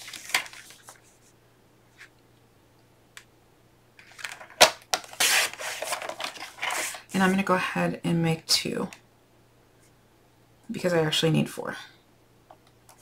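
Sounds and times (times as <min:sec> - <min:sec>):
paper rustling: 0:00.0 - 0:01.3, 0:04.0 - 0:07.4.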